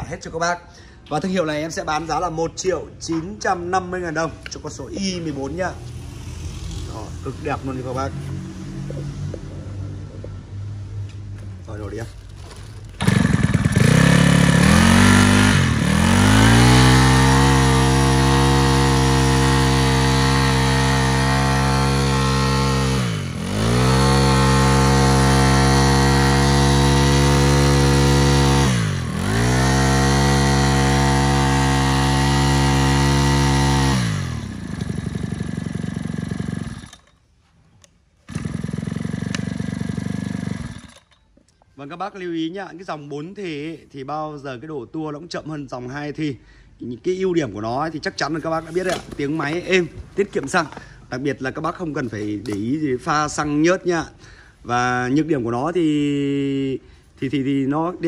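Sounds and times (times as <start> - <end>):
brush cutter engine revving: 11.7 - 37.2, 38.2 - 41.2, 48.4 - 51.1.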